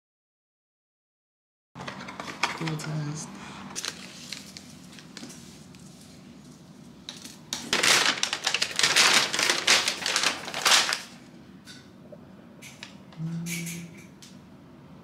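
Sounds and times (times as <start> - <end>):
paper leaflet crinkling and rustling: 3.8 - 11.3.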